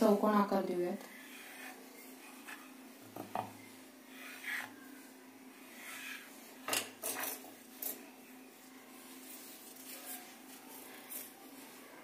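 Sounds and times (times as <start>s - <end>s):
dough scraping on wooden board: 1.1s - 2.8s, 4.0s - 4.8s, 5.7s - 6.3s.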